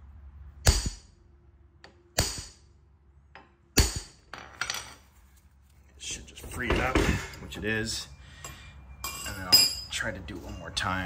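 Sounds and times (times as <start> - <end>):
hammer striking metal: 0.6 - 1.2, 1.8 - 2.7, 3.4 - 4.4.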